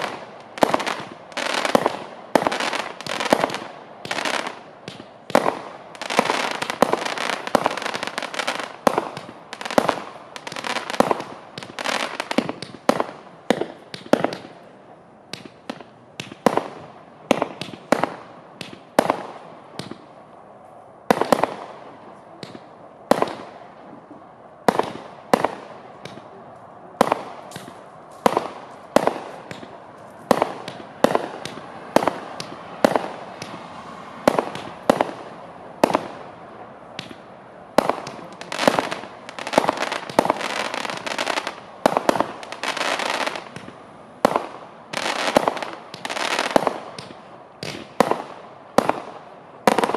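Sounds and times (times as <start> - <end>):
firework crackling: 0.0 - 14.6, 27.0 - 36.4, 37.0 - 49.9
firework shots firing: 0.0 - 14.6, 15.3 - 20.1, 21.1 - 23.6, 24.6 - 26.4, 27.0 - 33.6, 34.2 - 36.4, 37.0 - 49.9.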